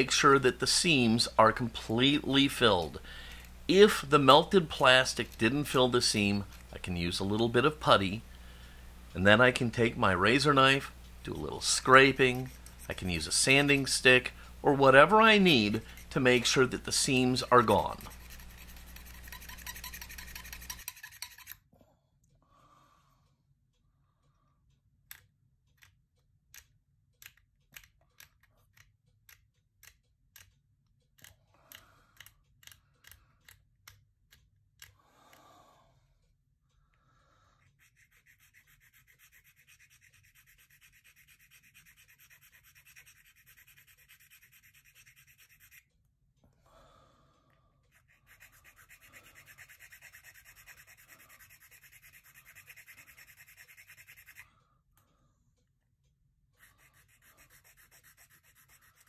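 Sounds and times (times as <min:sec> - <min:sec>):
sanding stick rubbing plastic: 0:11.3 - 0:21.5, 0:37.7 - 0:45.9, 0:47.9 - 0:54.5, 0:56.6 - 0:59.0
knife scraping plastic: 0:15.4 - 0:21.6.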